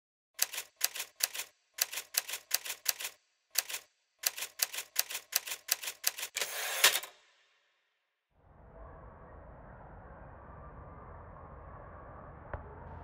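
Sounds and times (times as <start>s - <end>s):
typewriter keys clacking: 0.4s - 7.0s.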